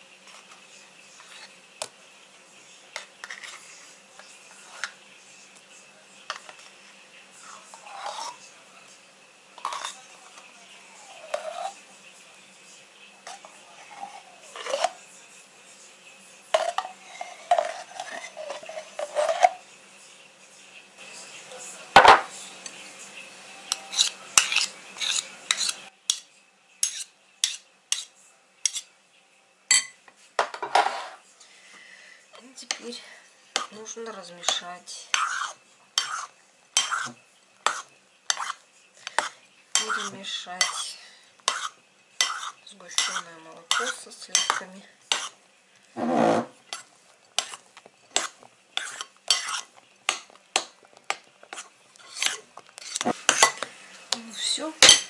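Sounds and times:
metal spoon clinking on kitchenware: 23.7 - 28.9, 29.7 - 31.1, 34.4 - 40.9, 41.5 - 45.4, 46.7 - 53.7, 54.4 - 55.0
spoon clinking on glass: 29.7 - 30.0.

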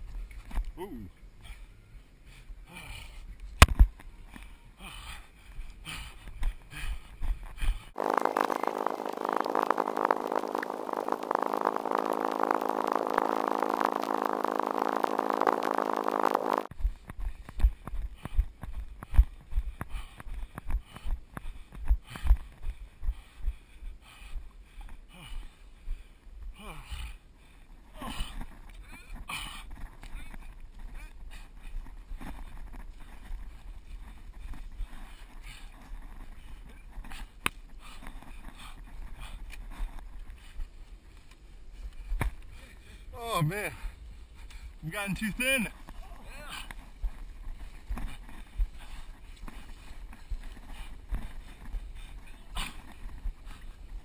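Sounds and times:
wind rumble on microphone: 6.6 - 23.6
engine-like buzzing drone: 8.0 - 16.7.

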